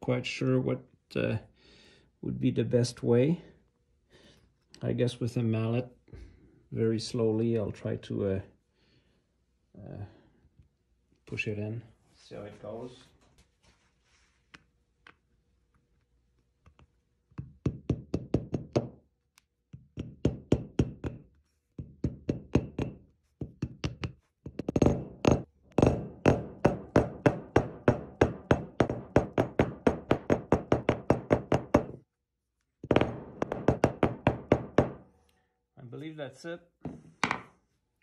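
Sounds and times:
rubber mallet tapping metal: 0:21.8 - 0:32.0.

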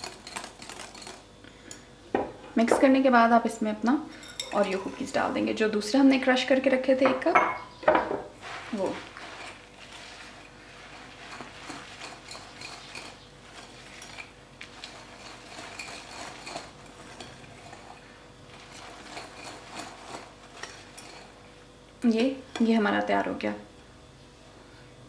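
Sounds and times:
whisk scraping in glass bowl: 0:00.0 - 0:01.2, 0:08.4 - 0:21.5.

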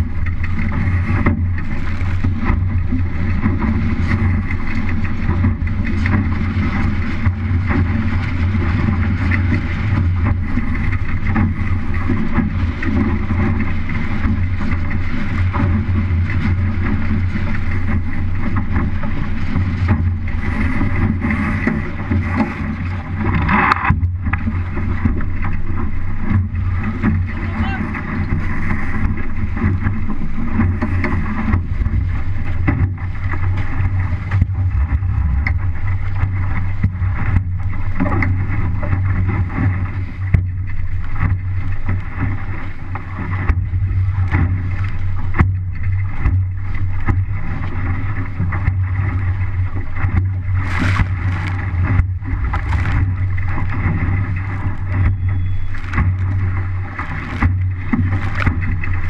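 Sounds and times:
water rushing along hull: 0:00.0 - 0:59.0
wind buffeting microphone: 0:00.0 - 0:59.0
loud splashes: 0:47.0 - 0:59.0.

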